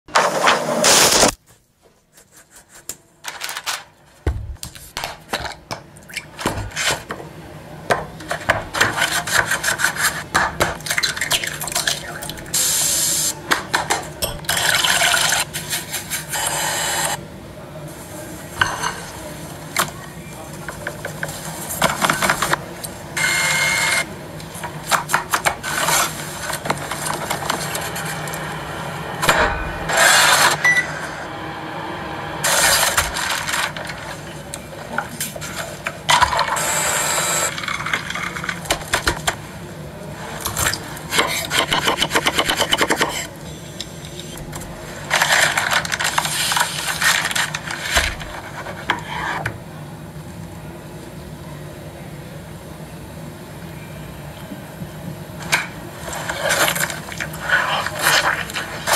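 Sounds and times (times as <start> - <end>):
utensils scraping and tapping: 41.1 - 43.3.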